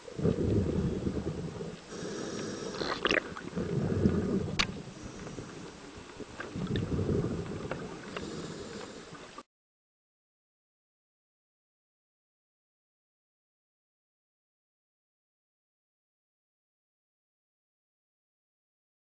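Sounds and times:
diver breathing through regulator: 1.4s - 5.8s, 6.6s - 9.4s
exhaust bubbles rushing: 2.7s - 4.9s, 6.5s - 8.1s
faint clicks: 4.0s - 9.4s.

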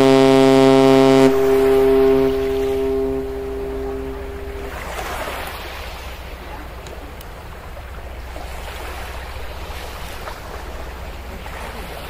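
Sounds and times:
water: 0.0s - 12.0s.

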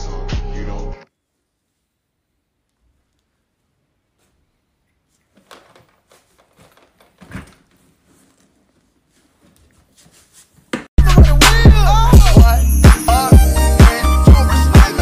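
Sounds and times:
hip-hop music with heavy bass: 0.0s - 1.0s, 11.0s - 15.0s
suitcase clicks and rustles: 5.3s - 8.7s.

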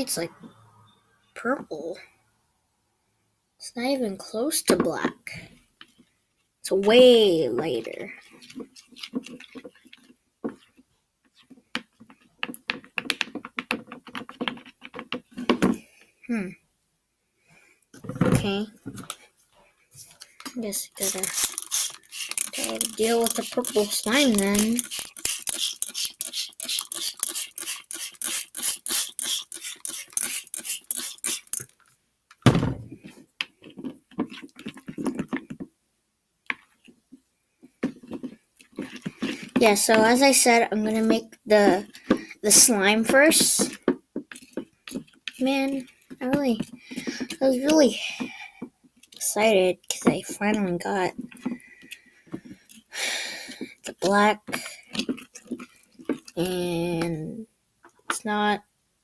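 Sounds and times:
stick stirring sticky slime: 6.6s - 16.0s, 20.0s - 31.9s, 33.0s - 35.7s, 36.4s - 57.2s
slime squelching by hand: 20.2s - 31.7s, 53.6s - 57.1s
spray bottle squirting: 20.8s - 31.8s.

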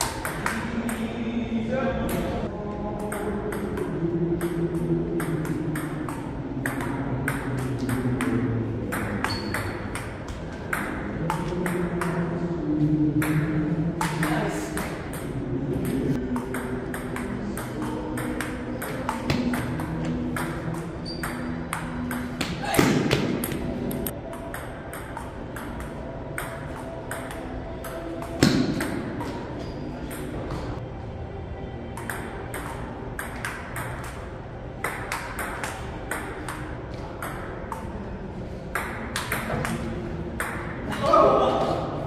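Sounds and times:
ping-pong ball bouncing on table: 0.0s - 1.1s, 3.0s - 12.2s, 13.2s - 29.4s, 32.0s - 34.2s, 34.8s - 37.9s, 38.7s - 39.8s, 40.4s - 40.8s
ping-pong ball hitting paddles: 0.0s - 1.2s, 3.0s - 12.4s, 13.2s - 30.7s, 32.0s - 38.0s, 38.7s - 41.1s.

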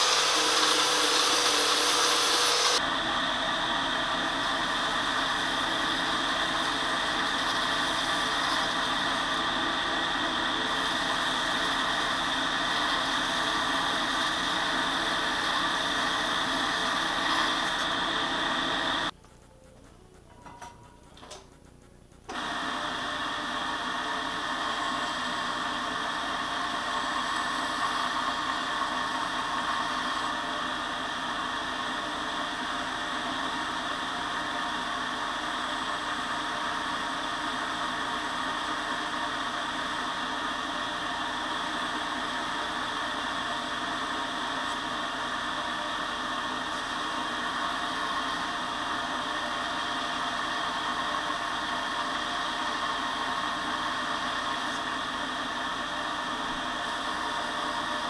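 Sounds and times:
belt grinder motor humming: 0.0s - 19.1s.

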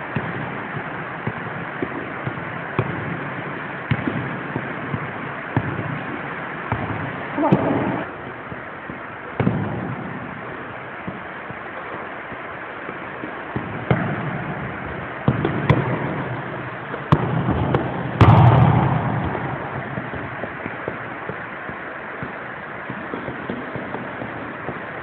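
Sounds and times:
background hiss: 0.0s - 25.0s
football kicked and bouncing: 1.2s - 3.1s, 3.9s - 6.0s, 6.7s - 9.8s, 13.6s - 14.2s, 15.3s - 16.3s, 17.0s - 22.4s.

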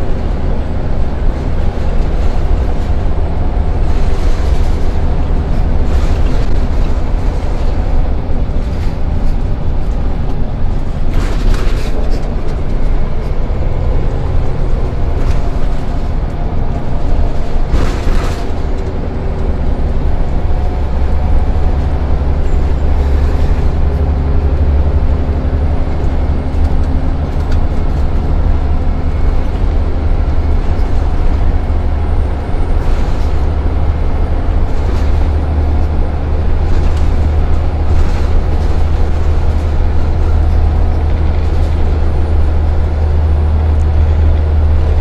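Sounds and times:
bus body rattles and knocks: 0.0s - 45.0s
bus diesel engine droning: 0.0s - 45.0s
road and tyre rumble: 0.0s - 45.0s.

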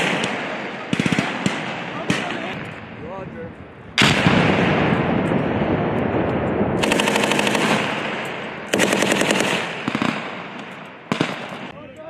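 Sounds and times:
automatic gunfire bursts: 0.0s - 2.6s, 6.8s - 11.7s
explosion echo: 0.0s - 11.8s.

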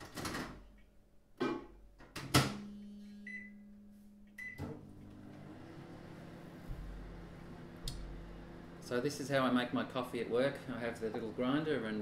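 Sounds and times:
microwave oven humming: 2.4s - 9.3s.

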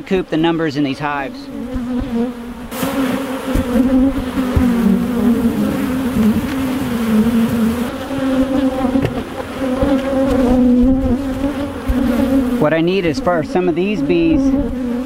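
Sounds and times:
honey bees buzzing: 0.0s - 15.0s
wooden hive boxes knocking: 1.6s - 12.6s.

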